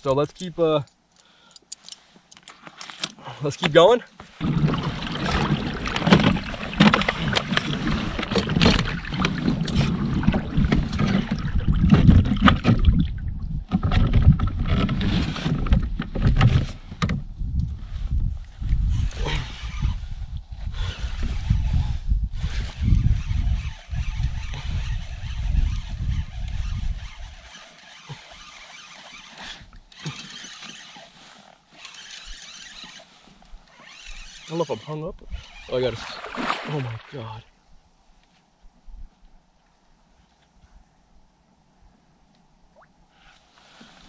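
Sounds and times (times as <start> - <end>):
paddle splashes and hull knocks: 4.2 - 16.6, 36.0 - 37.2
wind on microphone: 4.4 - 27.6
faint outdoor noise: 23.3 - 44.0.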